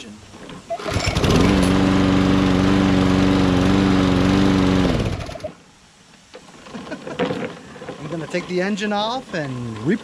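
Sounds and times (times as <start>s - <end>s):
lawn mower engine running: 0.7s - 5.6s.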